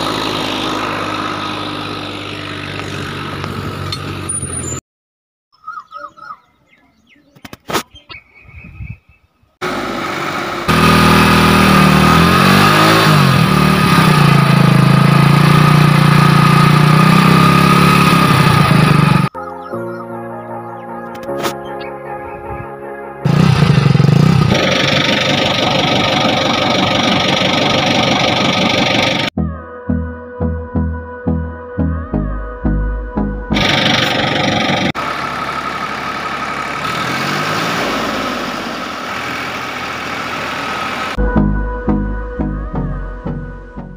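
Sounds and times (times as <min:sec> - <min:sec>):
engine revving: 0:00.0 - 0:04.8, 0:09.6 - 0:19.4, 0:23.2 - 0:29.4, 0:33.5 - 0:41.2.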